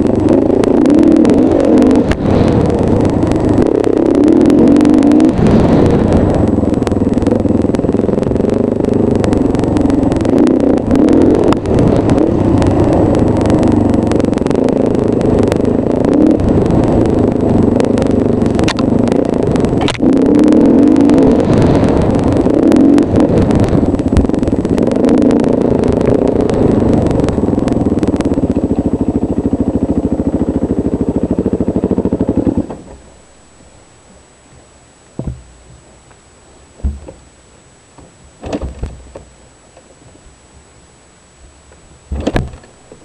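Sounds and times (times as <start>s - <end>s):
dirt bike engine running: 0.0s - 43.0s
short knocks: 35.2s - 35.8s, 36.8s - 37.3s.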